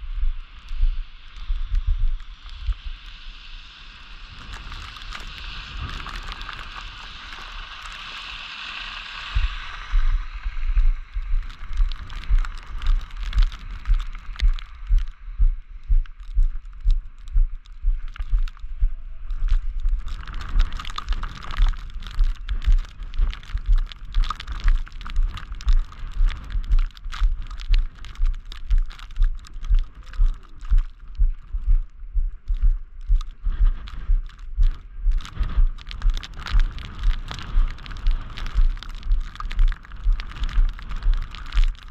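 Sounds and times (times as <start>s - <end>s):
steady hiss: 0.0s - 28.6s
footsteps crunching in snow: 9.2s - 41.9s.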